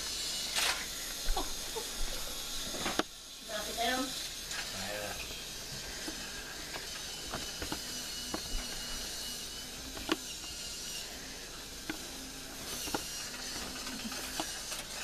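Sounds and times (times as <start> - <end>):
toy train motor whir: 0.0 - 15.0.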